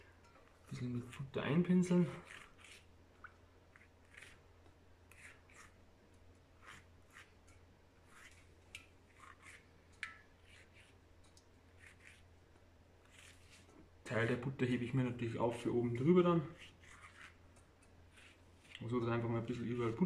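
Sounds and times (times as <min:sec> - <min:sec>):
pastry brush dabbing dough: 0:00.7 - 0:13.8, 0:15.6 - 0:20.0
brush clicking on steel pot: 0:09.9 - 0:10.3.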